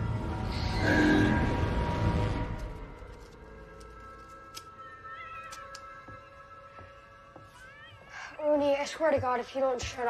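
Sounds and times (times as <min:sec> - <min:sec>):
low rumbling drone: 0:00.0 - 0:03.3.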